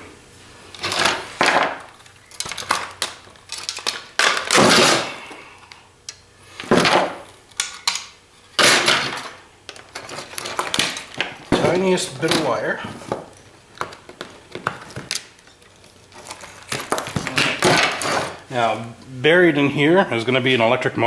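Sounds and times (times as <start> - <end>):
plastic parts clattering and scraping: 0.7 - 5.2, 6.6 - 18.4.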